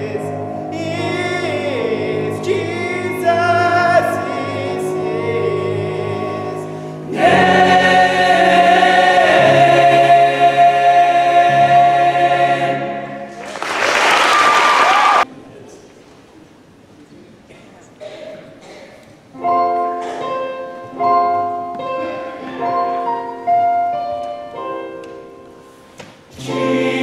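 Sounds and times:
male choir singing: 0.0 - 13.6, 26.3 - 27.0.

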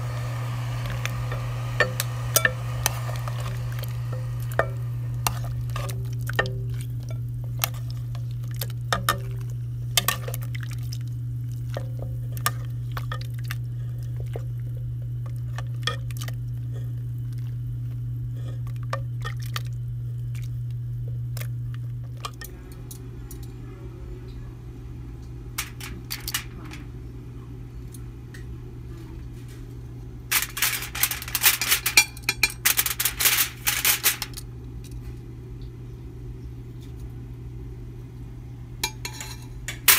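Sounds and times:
steady low hum: 0.0 - 39.9
aluminium foil crinkling: 25.6 - 26.8, 30.3 - 34.4.

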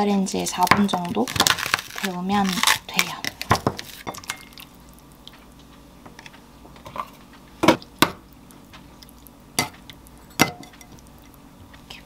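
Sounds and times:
spoon clinking against bowl: 10.2 - 11.0.

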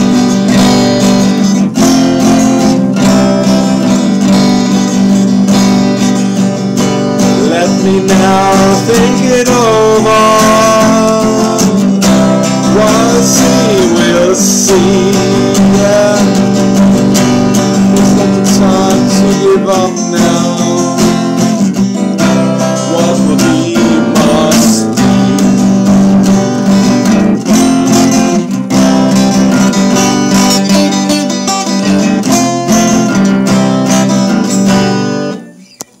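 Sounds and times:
acoustic guitar strumming: 0.0 - 36.0
man singing: 7.2 - 28.1.

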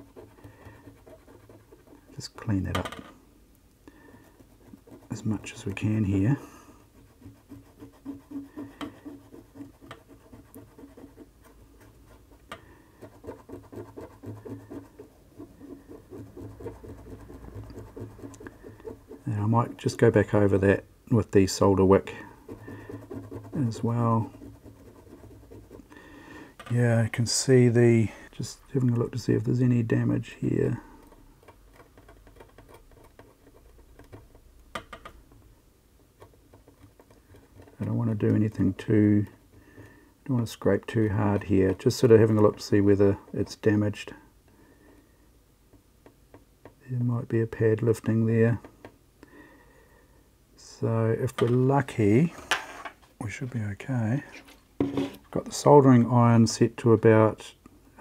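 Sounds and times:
cotton swab scrubbing circuit board: 0.0 - 2.7, 3.9 - 39.5, 40.2 - 44.1.

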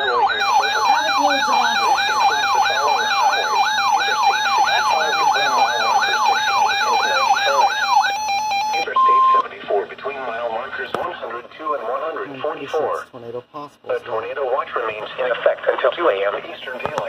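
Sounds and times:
electronic siren sweeping: 0.0 - 9.2
fast electronic beeping: 0.0 - 9.4.

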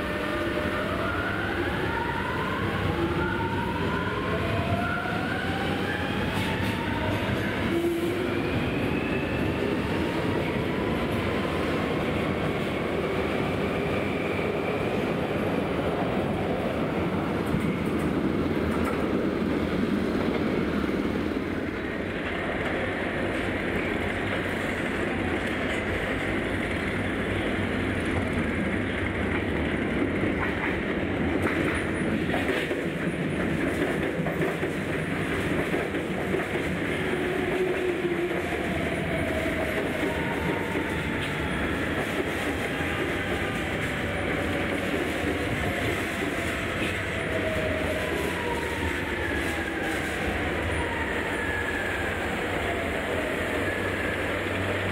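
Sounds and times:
train wheels rumbling on rail: 0.0 - 54.9.

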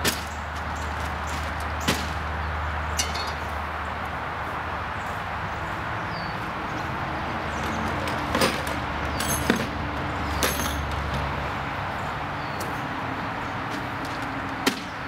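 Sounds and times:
metal garden tools clinking: 2.9 - 3.6, 8.0 - 9.7, 10.3 - 11.0.

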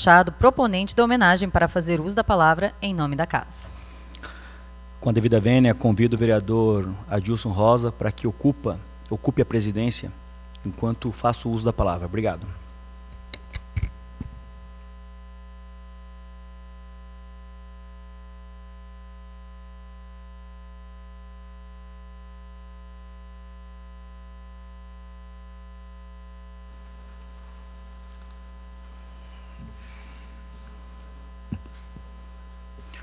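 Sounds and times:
electrical mains hum: 0.0 - 33.0.

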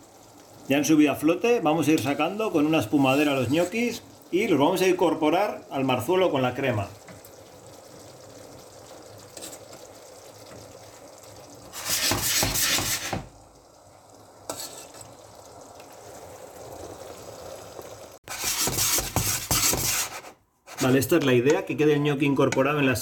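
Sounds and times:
sauce sizzling in a pan: 0.0 - 21.0
wooden spoon stirring: 1.8 - 4.0, 11.7 - 13.2, 18.3 - 21.7.

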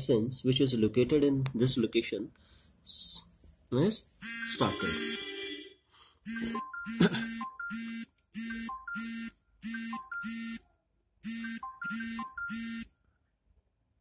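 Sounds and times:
short electronic beeps: 4.2 - 5.4, 6.3 - 10.6, 11.3 - 12.9.

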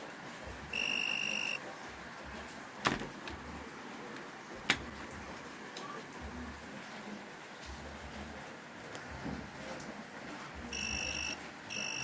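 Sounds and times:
high tester beep: 0.7 - 1.6, 10.7 - 12.0.

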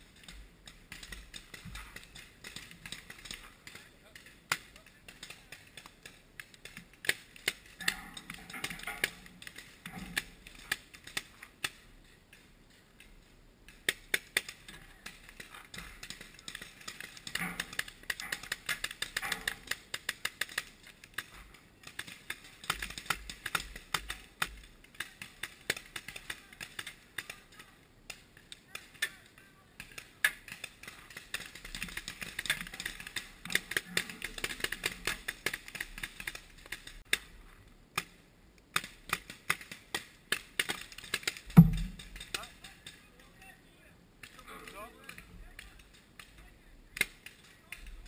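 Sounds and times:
loud knock: 41.6 - 42.1.

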